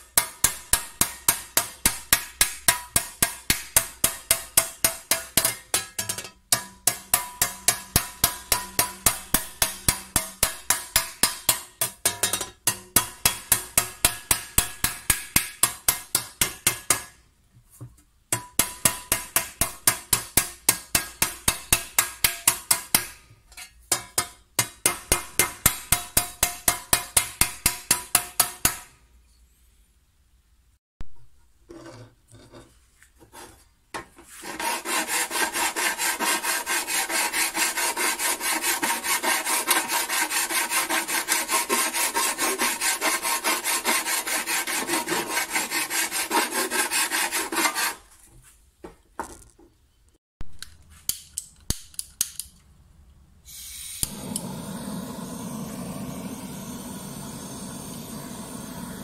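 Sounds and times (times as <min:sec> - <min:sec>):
hammer striking copper: 0:00.0 - 0:17.2, 0:18.3 - 0:29.0.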